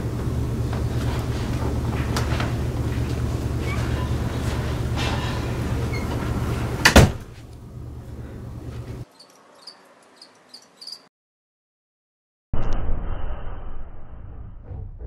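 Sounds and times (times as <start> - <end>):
door slamming shut: 6.8 - 7.3
faint crickets chirping: 9.1 - 11.1.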